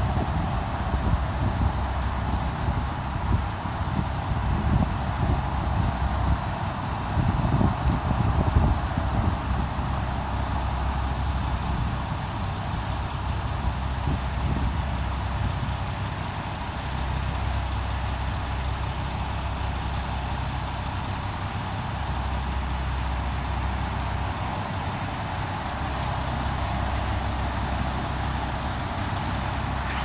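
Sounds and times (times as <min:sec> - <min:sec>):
wind buffeting microphone: 0:00.0 - 0:12.2, 0:13.5 - 0:15.8
road traffic noise: 0:00.0 - 0:30.0.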